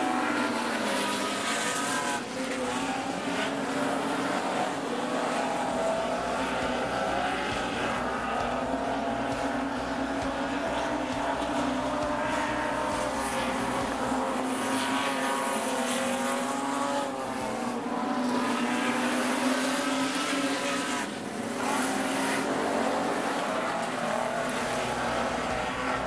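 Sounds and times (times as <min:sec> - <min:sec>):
race car engines at high revs: 0:00.0 - 0:26.0.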